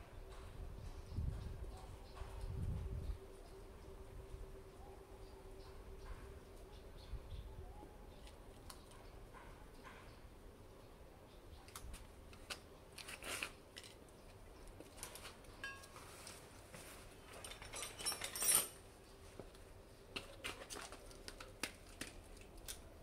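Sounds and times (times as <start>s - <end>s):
tool bag rustling and clatter: 14.8s - 18.9s.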